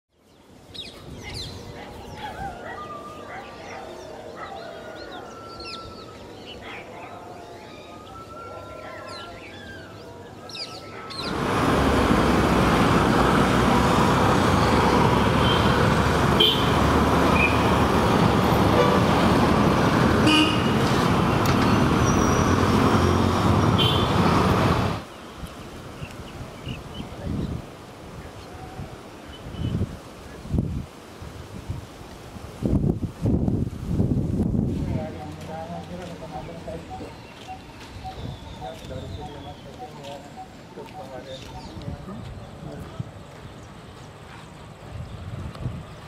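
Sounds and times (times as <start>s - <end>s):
birds chirping: 0.1s - 30.5s, 35.0s - 45.2s
street traffic: 0.2s - 30.6s, 32.1s - 46.0s
motorbike engines: 10.8s - 25.2s
car horn toots: 15.4s - 15.8s, 16.4s - 17.6s, 20.2s - 20.9s, 23.8s - 24.2s.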